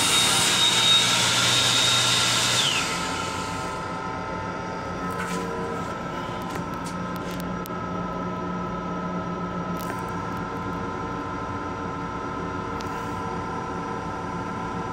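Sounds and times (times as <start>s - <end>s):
train running drone: 0.0s - 7.6s.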